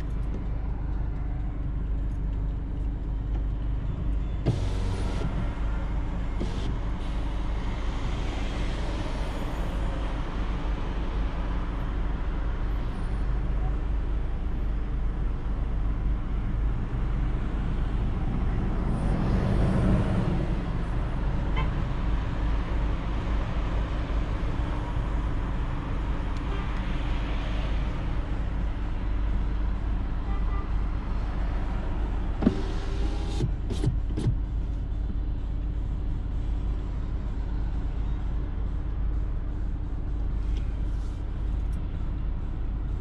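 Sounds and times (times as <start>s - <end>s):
car engine idling: 0.0s - 8.8s
traffic noise: 0.0s - 43.0s.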